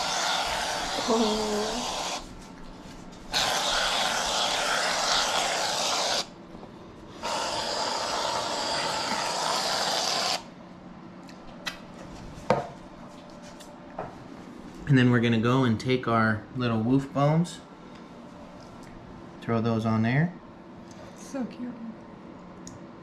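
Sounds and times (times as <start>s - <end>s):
aerosol can spraying hiss: 0.0s - 2.3s, 3.3s - 6.3s, 7.2s - 10.5s.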